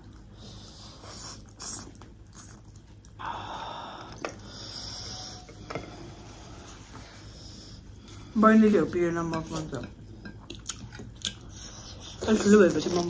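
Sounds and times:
person breathing: 3.2 - 8.4
person chewing: 10.3 - 13.0.

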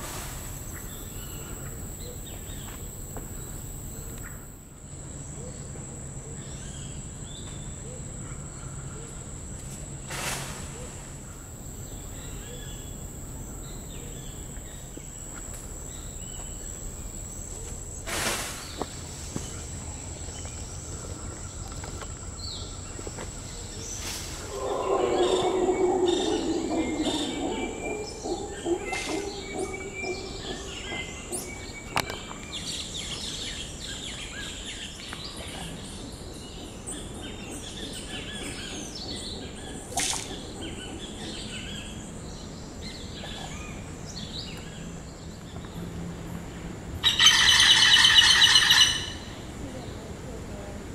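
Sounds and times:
birds chirping and calling: 18.7 - 45.8, 47.0 - 50.1
monkeys roaring: 24.4 - 31.9.

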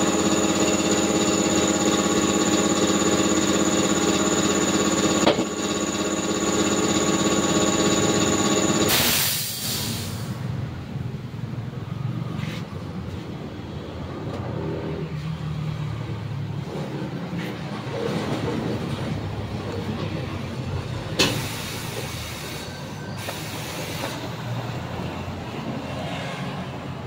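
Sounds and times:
air compressor motor running: 0.0 - 10.4, 21.2 - 24.4
hiss of released air: 8.8 - 10.5, 21.2 - 24.2.

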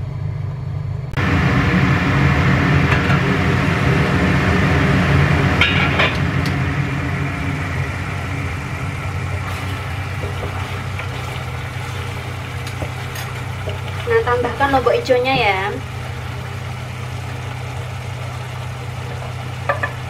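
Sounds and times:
sauce simmering in a pan: 6.4 - 20.0
spatula knocking in pan: 19.2 - 20.0.

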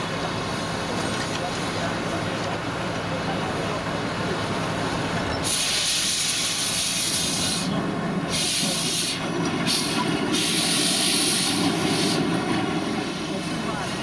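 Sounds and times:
loud steam hiss: 5.4 - 14.0.

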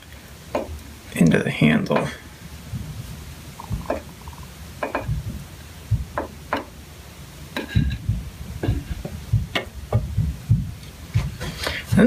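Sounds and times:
tools knocking on workbench: 4.8 - 5.2, 6.1 - 6.7, 7.6 - 11.3.

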